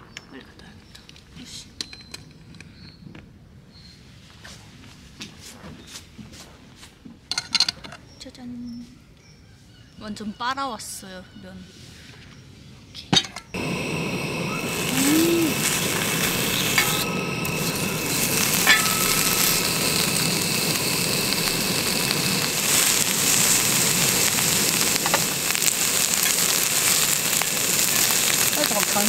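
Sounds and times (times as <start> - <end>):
meat sizzling on griddle: 13.6 - 29.0.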